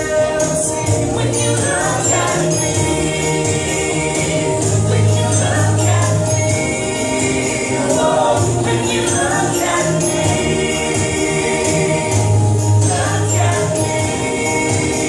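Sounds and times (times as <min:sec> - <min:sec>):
backing music with bass: 0:00.0 - 0:15.0
vocal group singing in harmony: 0:00.0 - 0:15.0.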